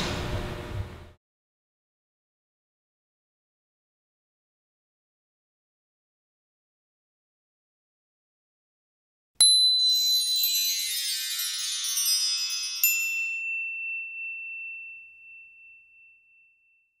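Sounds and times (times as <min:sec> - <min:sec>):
bright ding: 0:09.4 - 0:17.0
shimmer of bell-like tones: 0:09.4 - 0:17.0.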